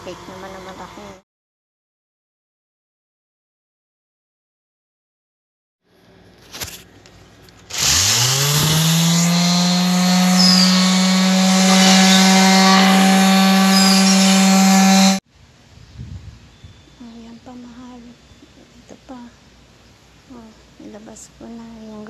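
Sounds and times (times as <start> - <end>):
electric sander humming: 7.7 - 15.2.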